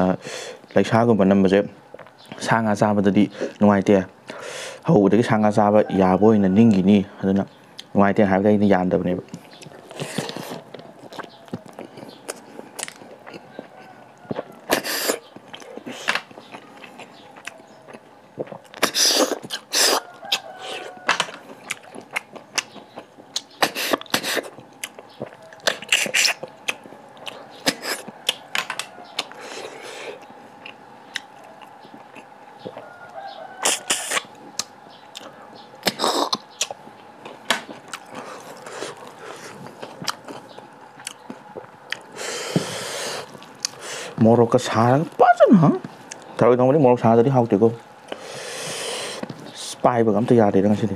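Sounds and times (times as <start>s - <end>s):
person chewing with wet smacks: 9.2s - 44.7s, 45.7s - 46.4s, 47.7s - 49.8s.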